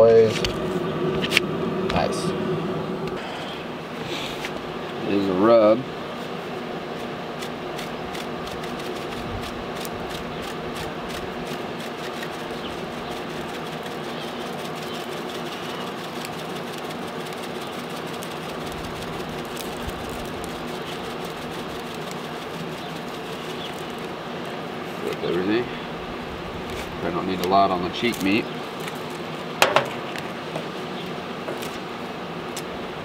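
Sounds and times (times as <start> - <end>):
smoker fan and motor hum: 0.0 - 33.0
spice shaker rattling: 7.4 - 24.2.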